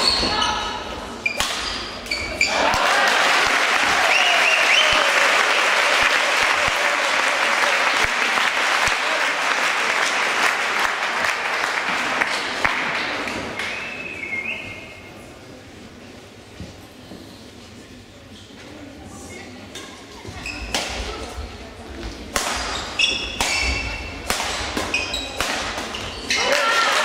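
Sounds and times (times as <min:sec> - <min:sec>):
audience applauding: 0:02.5 - 0:13.2.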